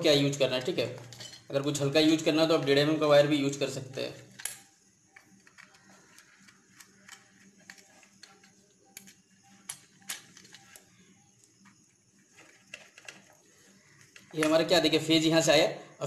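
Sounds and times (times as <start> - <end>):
screwdriver clicking and scraping: 4.4 - 10.9.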